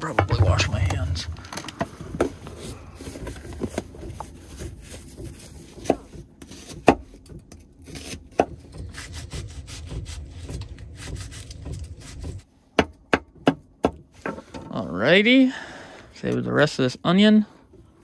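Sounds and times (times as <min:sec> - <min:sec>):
knife cutting onion: 0:05.8 - 0:12.3.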